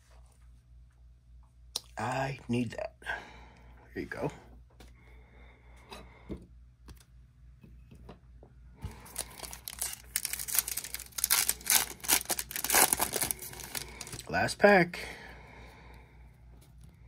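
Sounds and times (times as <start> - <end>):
wrapper crinkling and tearing: 9.0 - 14.3.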